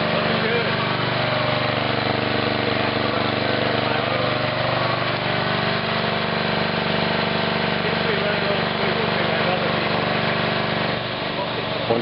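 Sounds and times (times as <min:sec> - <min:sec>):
generator engine running: 0:00.0 - 0:12.0.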